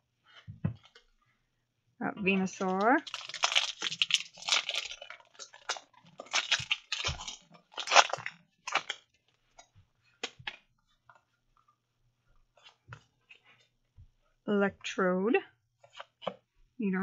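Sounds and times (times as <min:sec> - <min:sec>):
foil wrapper crinkling: 0:02.4 - 0:09.1
cards clicking and rustling: 0:02.6 - 0:09.0.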